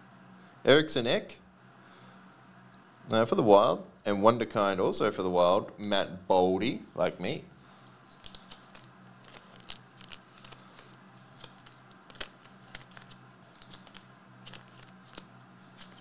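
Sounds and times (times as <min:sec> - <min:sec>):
steady low hum: 0:00.0 - 0:16.0
cards clicking and rustling: 0:08.1 - 0:16.0.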